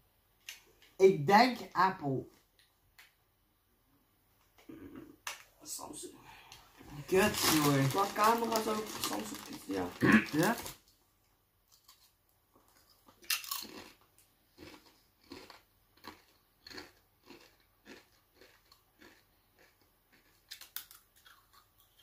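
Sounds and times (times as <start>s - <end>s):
person chewing tortilla chip: 11.7s - 22.0s.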